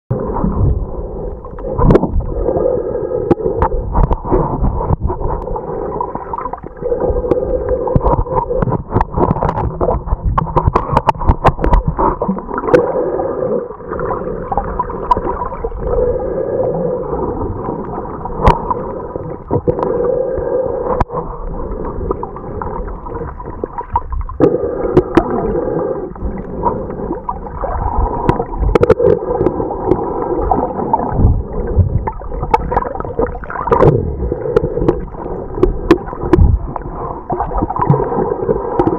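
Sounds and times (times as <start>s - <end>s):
underwater gurgling water: 0.1s - 38.9s
sharp clicks and knocks: 8.0s - 12.0s.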